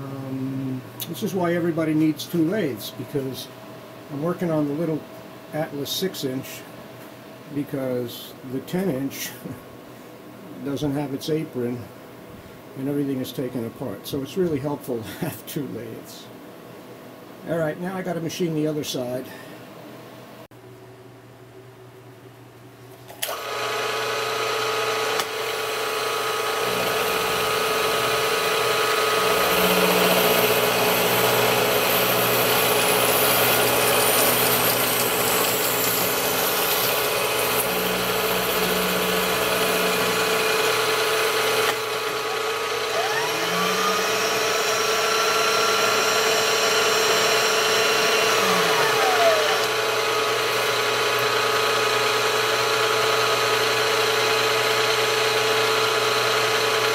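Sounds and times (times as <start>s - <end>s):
milling machine cutting metal: 23.2s - 56.9s
rising and falling tones: 46.5s - 50.4s.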